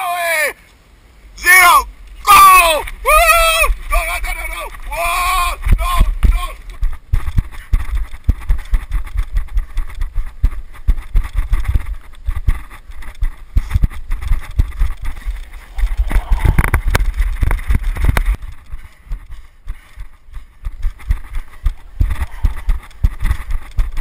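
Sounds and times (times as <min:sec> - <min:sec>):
rushing noise: 0:01.2 - 0:19.3
running footsteps on dirt: 0:01.4 - 0:24.0.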